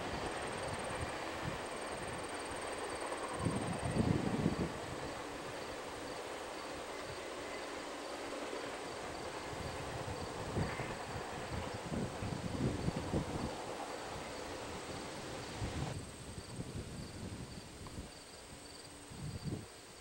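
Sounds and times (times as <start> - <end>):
insects chirping: 0.1 - 20.0.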